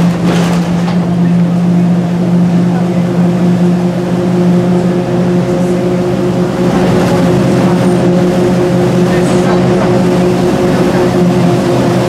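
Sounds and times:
bus engine droning: 0:00.0 - 0:12.0.

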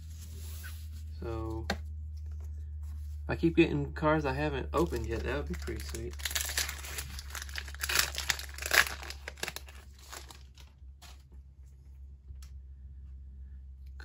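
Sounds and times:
foil wrapper crinkling: 0:04.8 - 0:11.2.

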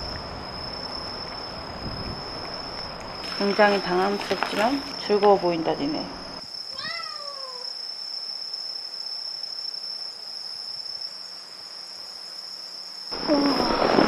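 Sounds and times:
insects chirping: 0:00.0 - 0:14.0
cat meowing: 0:06.8 - 0:07.6
loud cat cries: 0:06.8 - 0:07.6.

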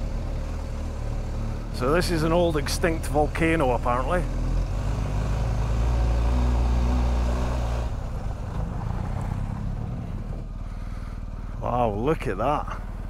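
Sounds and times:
motorcycle engine droning: 0:00.0 - 0:13.0.

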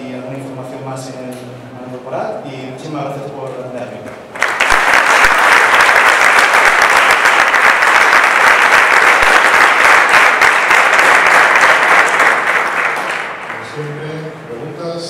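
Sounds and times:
large audience applauding: 0:04.3 - 0:13.9.

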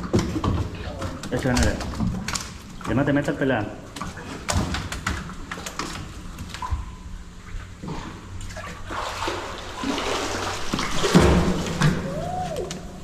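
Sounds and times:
water sloshing against a boat: 0:03.8 - 0:13.0
loud splash and knock: 0:08.9 - 0:12.1.

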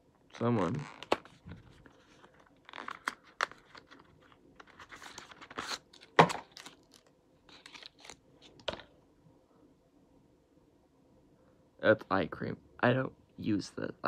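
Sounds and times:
paperboard carton crinkling: 0:01.0 - 0:08.6.

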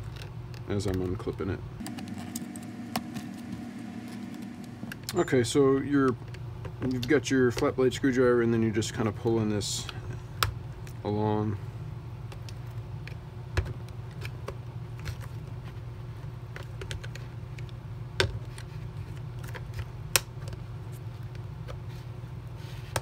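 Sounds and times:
steady low hum: 0:01.5 - 0:14.0.

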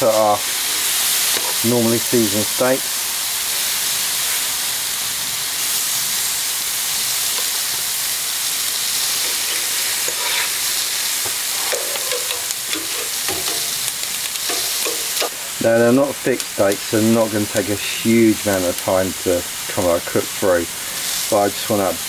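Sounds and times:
steaks sizzling on a grill: 0:00.0 - 0:22.0
metal tongs clicking: 0:11.7 - 0:15.4.

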